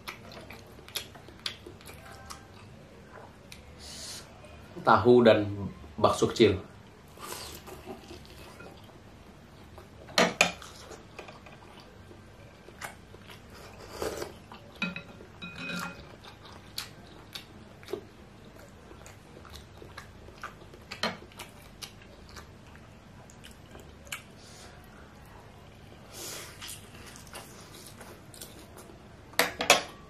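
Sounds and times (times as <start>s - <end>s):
chewing and mouth noises: 0.0s - 3.7s, 7.2s - 9.0s, 10.6s - 25.4s, 26.2s - 29.0s
metal fork clinking on dishes: 14.8s - 16.1s.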